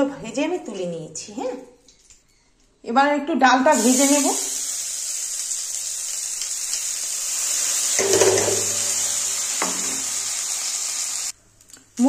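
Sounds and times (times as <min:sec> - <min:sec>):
lentils sizzling in hot oil: 0:03.7 - 0:11.4.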